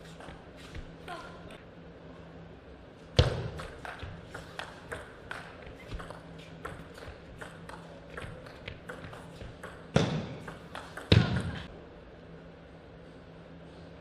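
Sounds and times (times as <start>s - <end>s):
ping pong ball clicking off bats: 3.6s - 11.2s.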